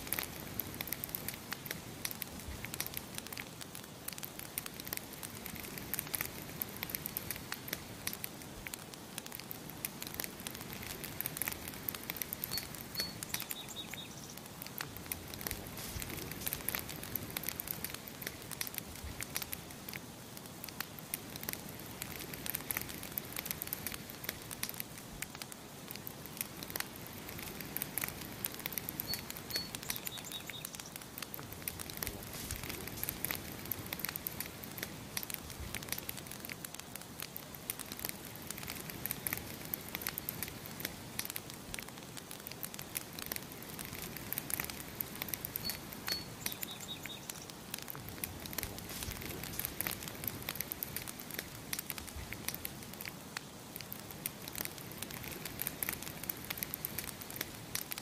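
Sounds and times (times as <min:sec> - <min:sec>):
campfire crackling and popping: 0:00.0 - 0:58.0
small bird chirping: 0:12.3 - 0:14.4, 0:28.9 - 0:31.0, 0:45.5 - 0:47.5.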